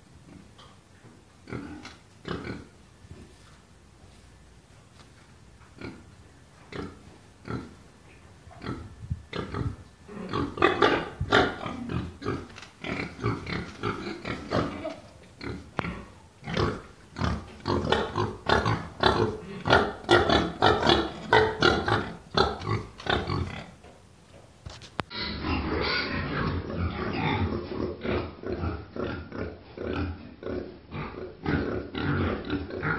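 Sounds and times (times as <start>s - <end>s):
young pigs grunting: 1.4s - 2.8s, 8.6s - 23.8s, 25.1s - 32.9s.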